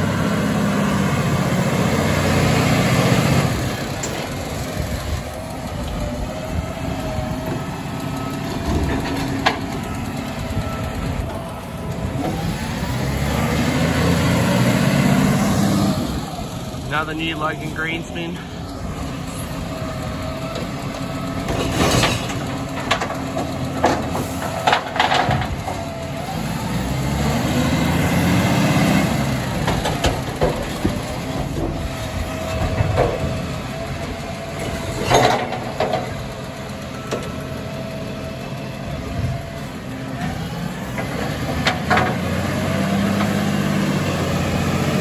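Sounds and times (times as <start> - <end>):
garbage truck diesel engine: 0.0 - 45.0
metallic knocks and clatter: 21.4 - 25.8, 34.6 - 36.1.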